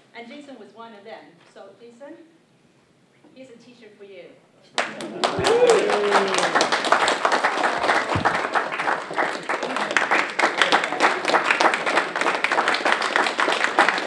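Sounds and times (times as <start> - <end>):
audience applause: 4.8 - 14.0.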